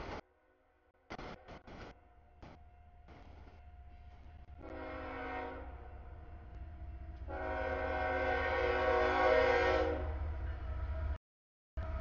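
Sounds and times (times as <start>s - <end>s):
low rumble of moving train: 0.0s - 11.2s, 11.8s - 12.0s
train air horn blasts: 4.6s - 5.9s, 7.3s - 10.2s.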